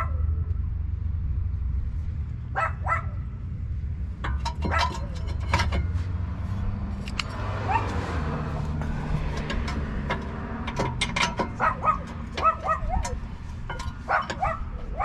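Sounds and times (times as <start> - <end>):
dog barking: 0.0 - 0.2, 2.5 - 3.2, 7.7 - 7.9, 11.6 - 13.1, 14.1 - 15.0
metal clinking: 4.1 - 15.0.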